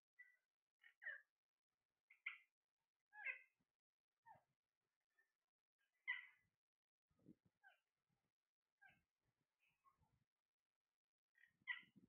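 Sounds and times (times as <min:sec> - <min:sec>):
parakeets calling: 0:03.1 - 0:03.5, 0:06.0 - 0:06.4, 0:11.4 - 0:12.0.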